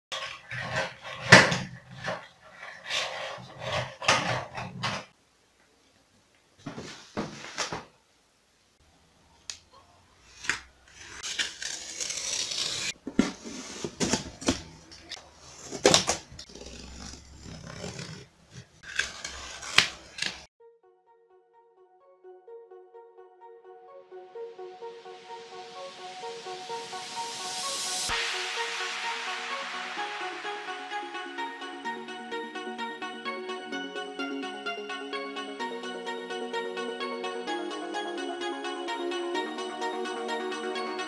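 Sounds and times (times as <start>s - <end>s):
utility knife scoring cardboard: 15.4s - 20.4s.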